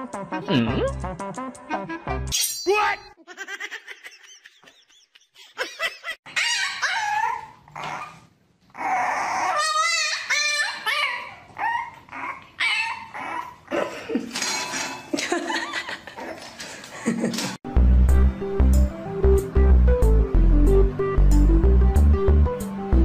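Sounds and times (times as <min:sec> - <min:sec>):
dog whining and yipping: 0:06.3 - 0:13.7.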